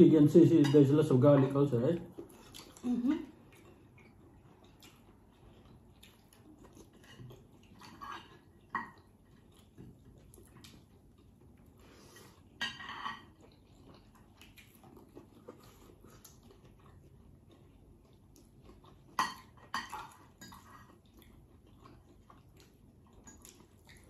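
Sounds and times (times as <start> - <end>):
faint eating sounds: 0.0 - 24.0
dishes and cutlery clinking: 0.4 - 1.7, 7.0 - 9.1, 12.4 - 13.6, 19.1 - 21.0.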